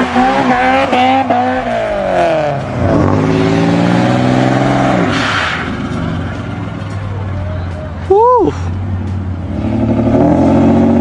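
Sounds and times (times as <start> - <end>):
car engine revving hard: 0.0 - 6.2, 9.4 - 11.0.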